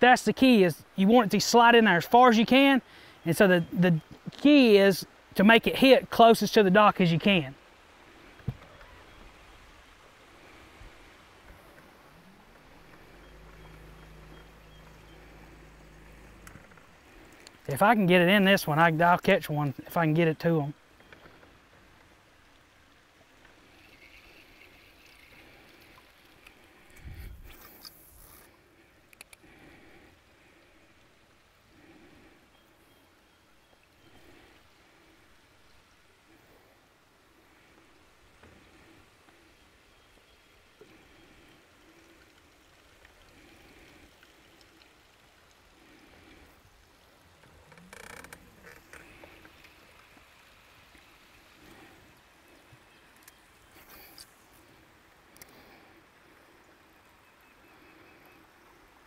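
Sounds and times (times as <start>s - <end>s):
water lapping softly: 2.1s - 6.0s, 7.2s - 19.0s, 19.6s - 59.0s
light hiss: 21.1s - 31.2s, 40.8s - 57.1s.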